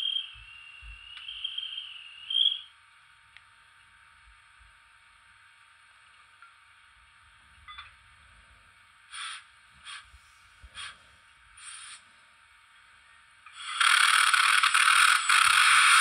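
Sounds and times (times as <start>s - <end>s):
hissing bursts of steam: 9.1s - 11.0s, 11.6s - 12.1s, 13.5s - 16.0s.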